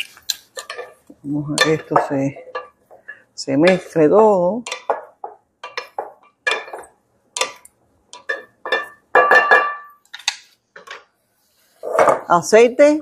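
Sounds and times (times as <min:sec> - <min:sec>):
wooden spoons clinking on glass bowl: 0:04.6 - 0:11.0.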